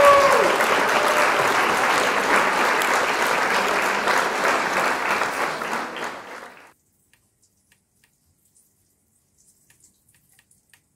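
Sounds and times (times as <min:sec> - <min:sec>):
applause: 0:00.0 - 0:06.8.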